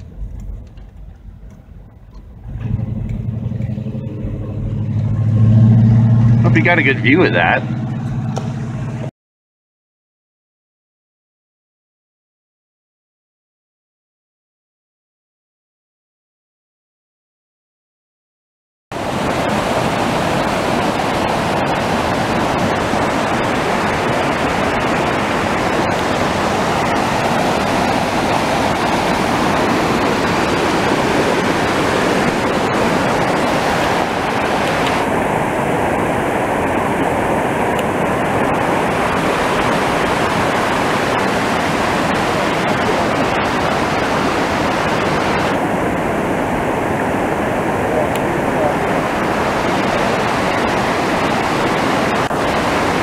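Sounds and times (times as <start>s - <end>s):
creek rushing over rocks: 4.5s - 8.8s, 18.9s - 53.0s.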